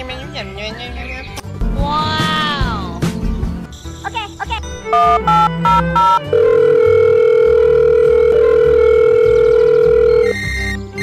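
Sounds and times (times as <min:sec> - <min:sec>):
background music with steady beat: 0:00.0 - 0:11.0
long steady telephone tone: 0:04.9 - 0:10.3
telephone beeps: 0:04.9 - 0:10.4.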